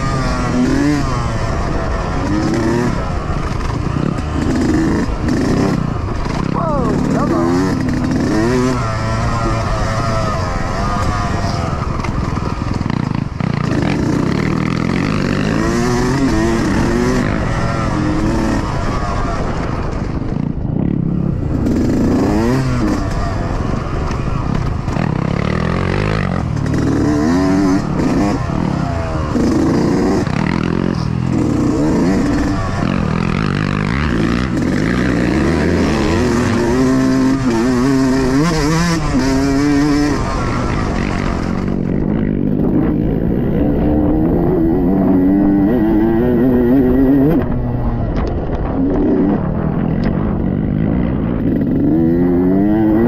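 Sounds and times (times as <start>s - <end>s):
dirt bike engine revving: 0.0s - 53.0s.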